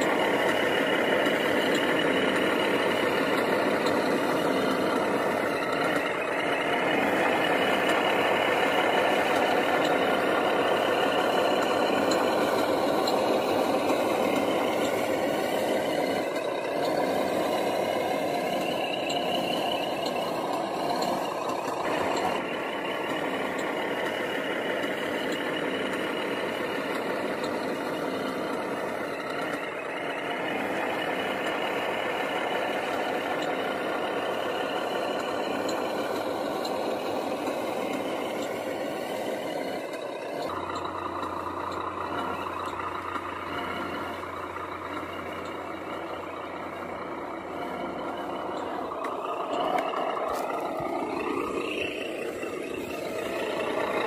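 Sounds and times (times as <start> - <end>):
toy truck motor whining: 0.0 - 54.0.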